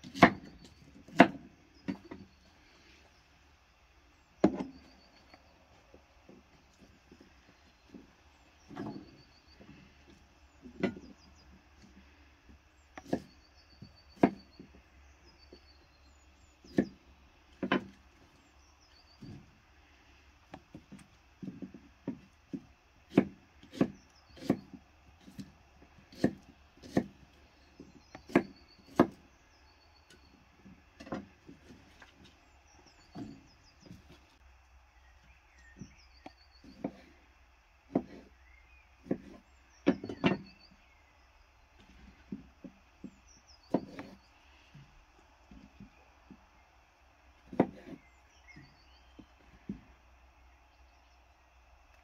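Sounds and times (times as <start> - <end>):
knife chopping on wooden board: 13.0 - 13.3, 21.4 - 25.5, 26.1 - 27.2, 28.1 - 29.2, 37.9 - 38.3, 39.0 - 40.5, 43.7 - 44.2, 47.5 - 48.0.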